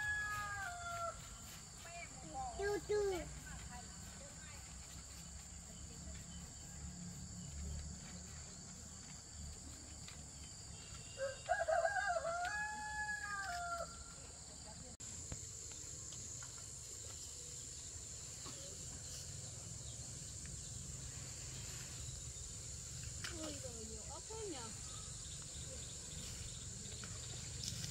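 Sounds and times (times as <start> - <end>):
rooster crowing: 0.0 - 1.4, 11.1 - 14.2
insects buzzing: 0.0 - 27.9.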